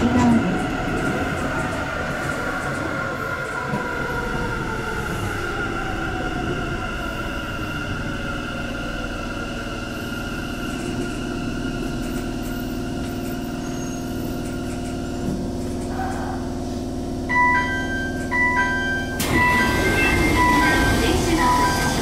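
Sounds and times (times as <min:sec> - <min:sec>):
train running rumble: 0:00.0 - 0:22.0
train braking: 0:03.5 - 0:15.3, 0:17.3 - 0:22.0
two-tone door chime: 0:17.3 - 0:22.0.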